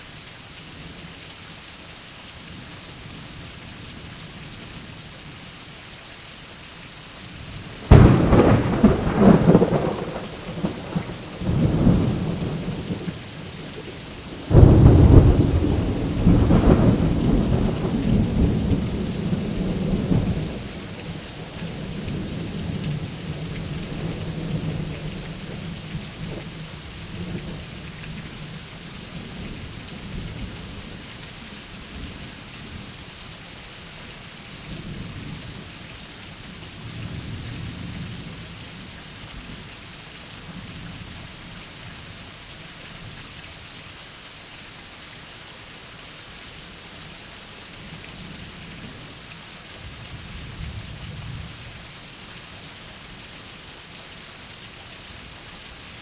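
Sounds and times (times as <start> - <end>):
steady rain: 0.0 - 56.0
thunder cracking and rumbling: 7.9 - 13.0, 14.4 - 20.6.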